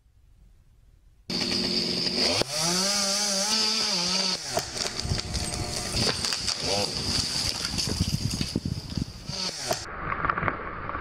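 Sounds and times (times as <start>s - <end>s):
chainsaw running: 1.3s - 7.6s, 9.2s - 9.9s.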